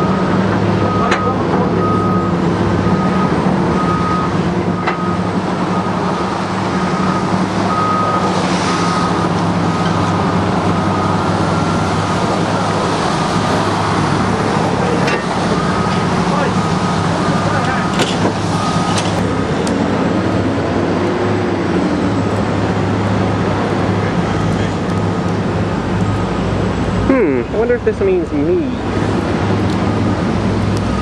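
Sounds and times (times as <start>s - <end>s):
reversing alarm beeping: 0.0s - 12.9s, 14.0s - 19.2s
truck engine idling: 0.0s - 31.0s.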